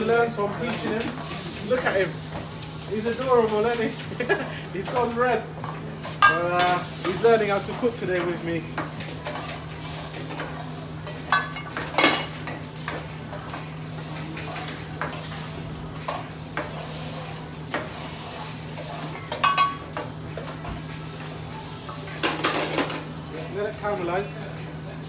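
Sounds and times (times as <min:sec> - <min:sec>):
light sizzle: 0:00.0 - 0:25.0
metal spoon scraping a wok: 0:06.0 - 0:15.4, 0:16.1 - 0:20.1.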